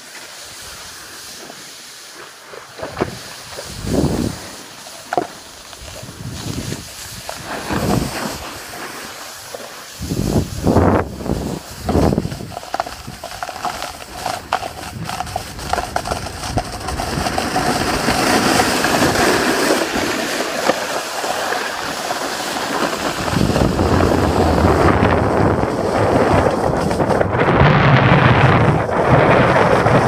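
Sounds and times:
skis scraping and hissing on snow: 0.0s - 27.4s
wind buffeting microphone: 2.7s - 4.7s, 5.6s - 9.2s, 10.0s - 20.7s, 21.7s - 30.0s.

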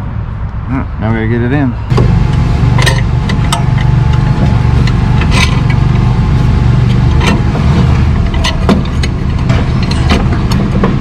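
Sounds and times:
low engine drone: 1.8s - 11.0s
metal parts clicking: 2.7s - 11.0s.

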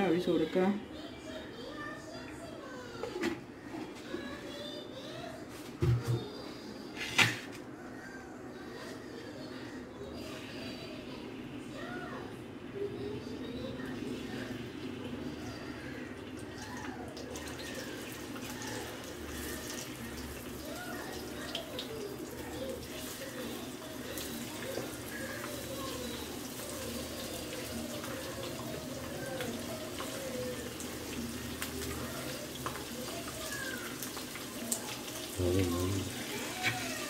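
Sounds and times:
oil crackling and popping: 16.2s - 37.0s
fish sizzling in hot oil: 16.6s - 37.0s.

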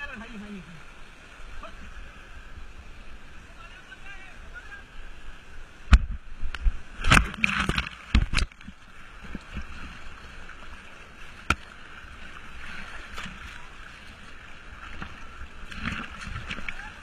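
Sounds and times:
river water rushing: 0.0s - 17.0s
loud splashes and knocks: 7.0s - 9.8s.

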